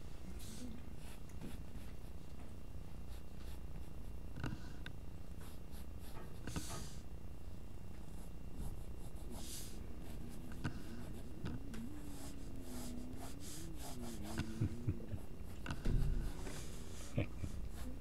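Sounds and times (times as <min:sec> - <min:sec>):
faint wavering hum: 0:00.0 - 0:18.0
pencil scratching on paper: 0:08.0 - 0:14.6, 0:15.4 - 0:18.0.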